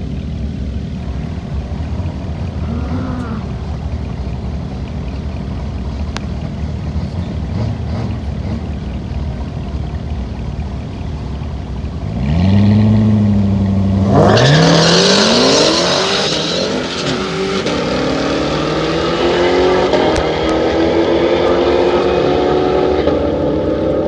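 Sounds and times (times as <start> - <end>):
drag car engines revving: 0.0 - 24.0
drag cars launching and accelerating: 0.7 - 9.5, 12.0 - 24.0.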